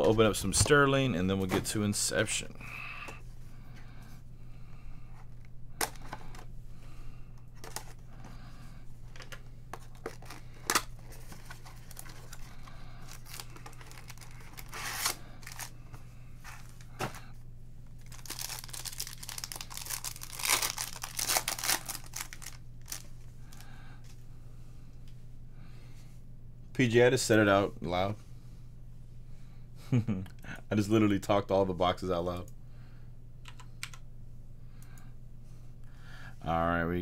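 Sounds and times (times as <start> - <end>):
low steady hum: 0.0 - 37.0
card packs tearing: 9.8 - 15.7, 18.0 - 23.6
wrapper crinkling: 9.8 - 15.7, 18.0 - 23.6.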